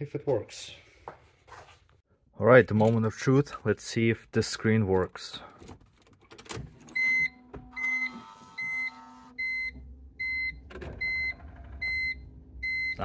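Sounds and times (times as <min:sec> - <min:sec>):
car warning chime beeping: 0:07.0 - 0:13.0.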